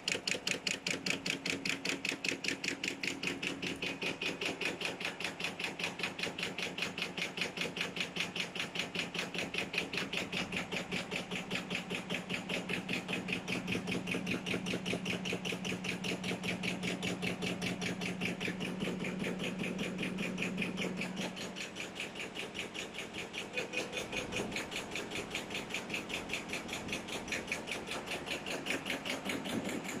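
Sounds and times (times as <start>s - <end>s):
cutting blade chopping clatter: 0.0s - 30.0s
motor hum: 0.0s - 30.0s.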